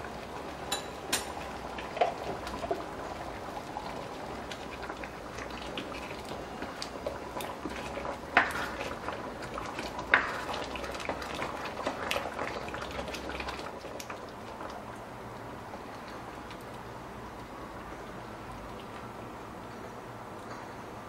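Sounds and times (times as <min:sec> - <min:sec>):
curry bubbling in frying pan: 0:00.0 - 0:19.8
ladle stirring and scraping: 0:00.7 - 0:14.7.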